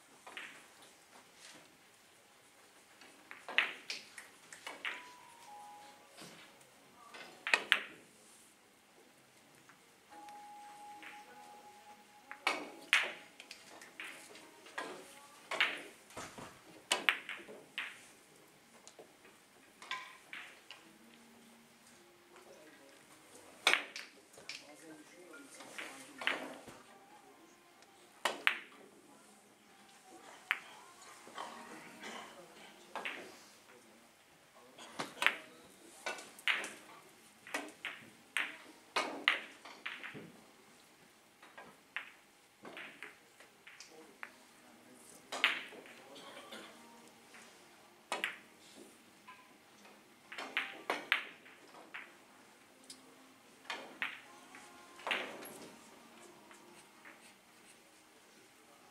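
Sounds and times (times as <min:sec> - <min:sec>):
billiard balls clicking: 0:03.0 - 0:05.3, 0:12.3 - 0:16.0, 0:16.7 - 0:18.1, 0:23.6 - 0:24.6, 0:36.2 - 0:40.4, 0:41.4 - 0:43.9, 0:45.3 - 0:46.0, 0:48.1 - 0:48.4, 0:50.3 - 0:52.2, 0:53.6 - 0:57.3.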